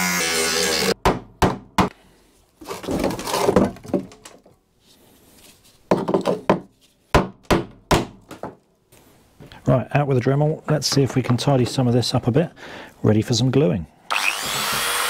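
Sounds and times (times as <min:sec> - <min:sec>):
angle grinder cutting metal: 0:00.0 - 0:01.0, 0:14.1 - 0:15.0.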